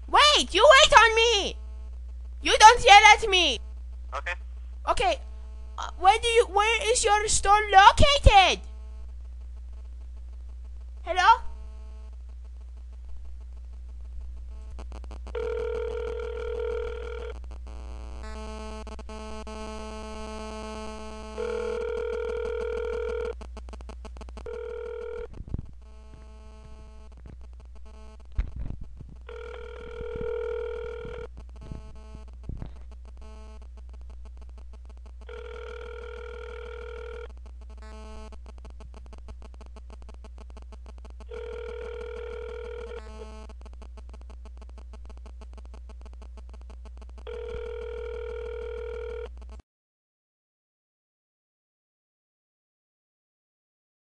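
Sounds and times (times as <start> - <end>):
telephone ringback tone: 15.4 - 17.3, 21.4 - 23.3, 24.5 - 25.3, 29.3 - 31.3, 35.3 - 37.3, 41.3 - 43.0, 47.3 - 49.3
phone line tones: 15.4 - 17.4, 21.4 - 23.4, 24.5 - 25.3, 29.3 - 32.2, 35.3 - 37.3, 41.2 - 43.4, 47.3 - 49.3.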